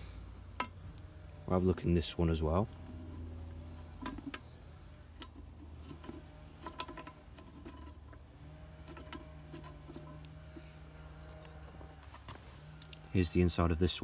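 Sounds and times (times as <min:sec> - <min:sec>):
small metallic clicks and taps: 0:04.0 - 0:08.2.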